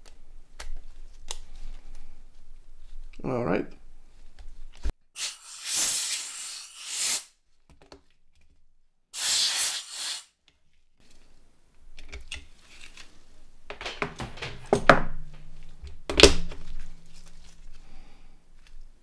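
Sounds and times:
short hiss: 5.2 - 7.3, 9.2 - 10.3
low steady hum: 11.1 - 19.0.

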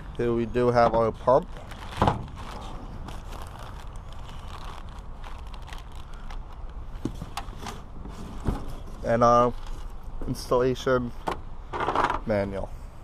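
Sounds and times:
plastic packaging crinkling: 0.0 - 7.6.

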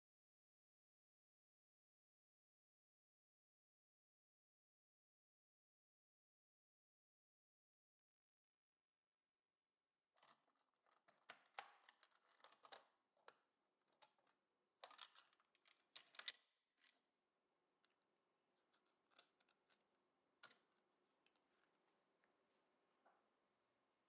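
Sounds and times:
plastic cover clicking and scraping: 10.2 - 17.0, 18.7 - 19.8.

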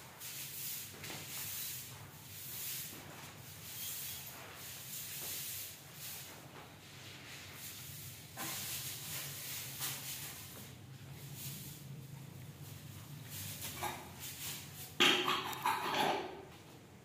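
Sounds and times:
broom sweeping stone floor: 0.0 - 16.0.

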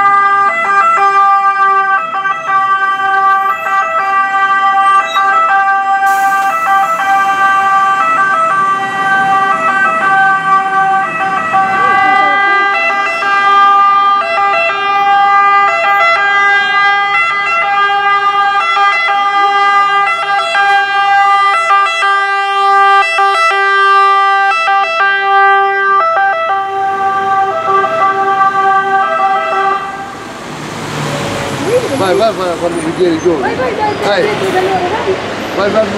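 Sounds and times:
fire engine two-tone siren: 0.0 - 34.8.

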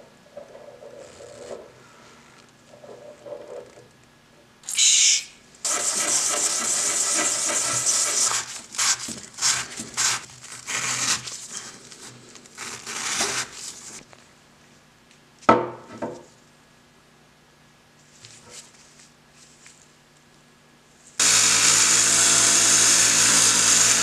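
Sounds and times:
hammer head scraping on sandpaper: 7.1 - 11.8.

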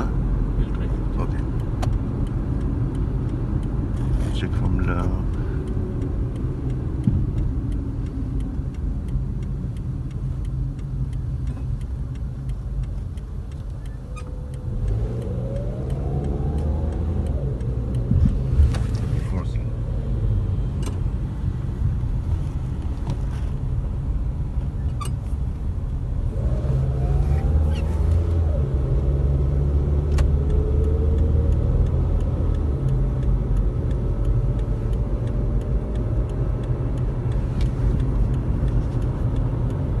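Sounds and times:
car engine and road noise: 0.0 - 40.0.

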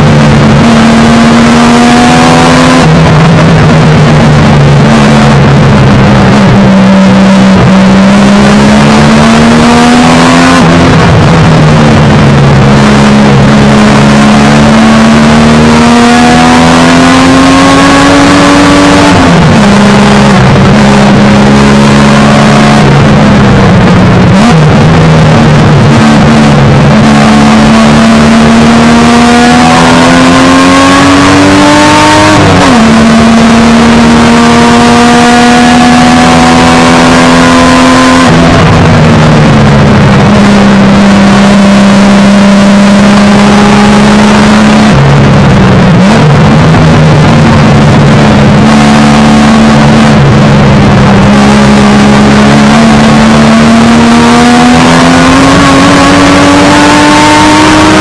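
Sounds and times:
car engine at racing revs: 0.0 - 58.0.

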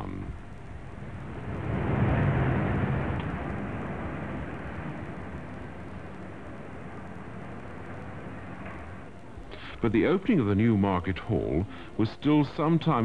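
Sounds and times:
low traffic hum: 0.0 - 13.0
car passing by: 0.8 - 9.1.

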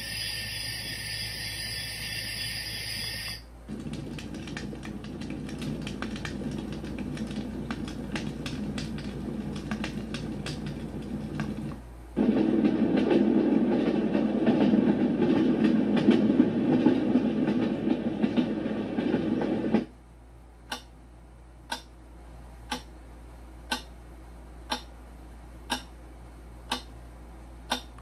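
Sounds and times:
low rumbling noise: 3.5 - 19.9
sharp ticks: 21.7 - 21.9, 24.7 - 24.9, 25.7 - 25.9, 26.7 - 26.9, 27.7 - 28.0.

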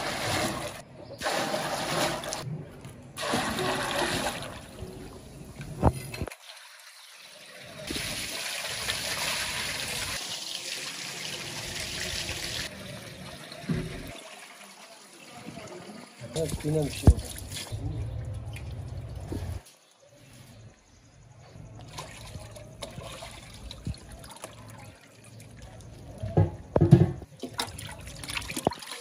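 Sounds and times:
hose water running into pot: 6.3 - 17.7
meat washed by hand in water: 27.3 - 29.0.

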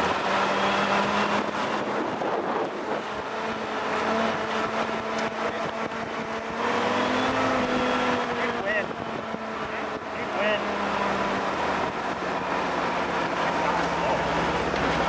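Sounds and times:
car engine running: 0.0 - 15.0
wind noise: 0.0 - 15.0
tyres on gravel: 9.7 - 15.0.

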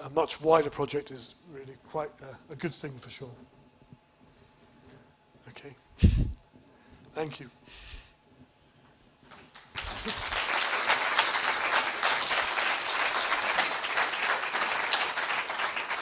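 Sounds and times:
audience applauding: 9.3 - 16.0.

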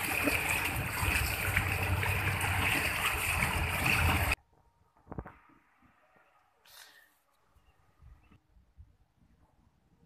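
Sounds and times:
motorboat engine humming: 0.0 - 4.4
water splashing along boat hull: 0.0 - 4.4.

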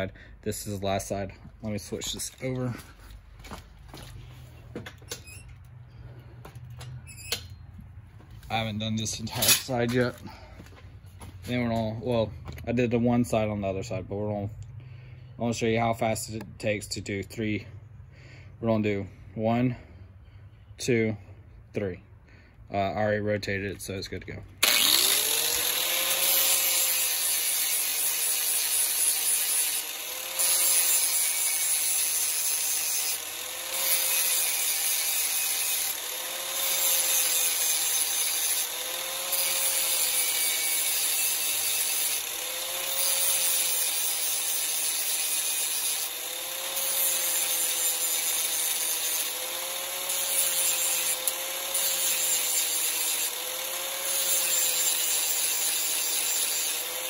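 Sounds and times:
angle grinder grinding metal: 8.4 - 10.3, 24.6 - 57.0.

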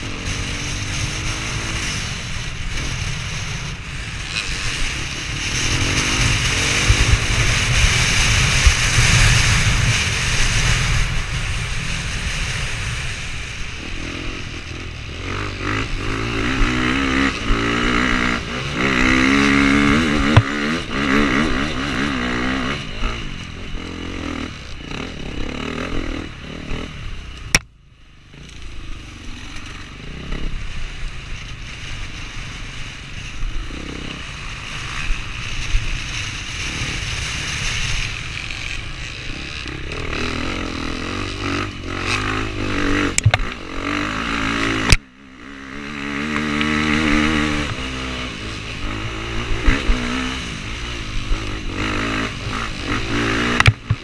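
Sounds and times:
dirt bike engine revving: 0.0 - 27.6, 28.3 - 54.0
rushing and rattling noises: 45.8 - 54.0.

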